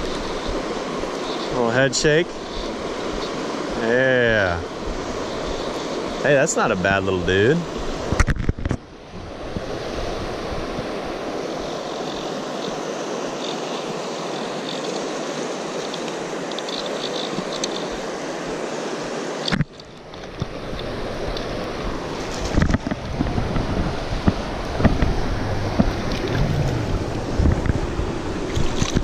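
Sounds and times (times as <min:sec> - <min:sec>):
river water rushing: 0:00.0 - 0:08.2, 0:08.8 - 0:29.0
wind on microphone: 0:06.8 - 0:11.8, 0:20.3 - 0:29.0.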